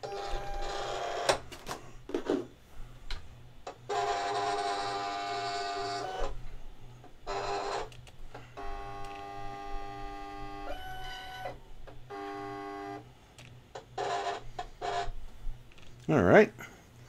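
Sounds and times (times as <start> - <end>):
cutting machine motors whining: 3.7 - 13.1.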